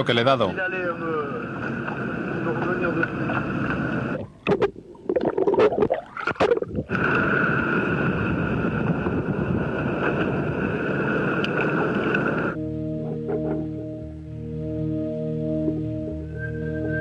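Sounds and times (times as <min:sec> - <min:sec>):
boat engine drone: 0:00.0 - 0:05.0, 0:06.9 - 0:17.0
underwater bubbling and crackling: 0:01.4 - 0:12.6.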